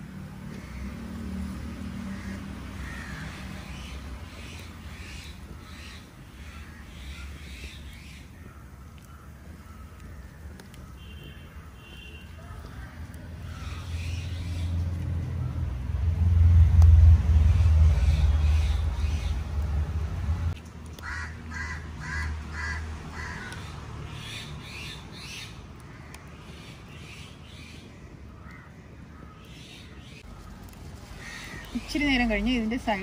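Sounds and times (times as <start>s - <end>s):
crow cawing: 2.0s - 3.9s, 21.0s - 24.4s, 28.4s - 29.6s, 31.2s - 31.8s
low rumble: 13.5s - 20.6s.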